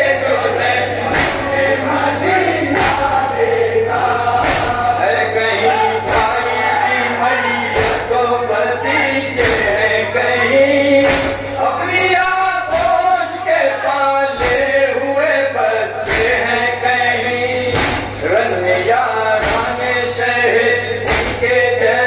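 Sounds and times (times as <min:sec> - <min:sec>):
men chanting in chorus: 0:00.0 - 0:22.0
unison chest slaps: 0:04.4 - 0:04.8, 0:11.0 - 0:11.4, 0:12.7 - 0:13.0, 0:14.4 - 0:14.7, 0:17.7 - 0:18.2, 0:19.4 - 0:19.7, 0:21.1 - 0:21.5.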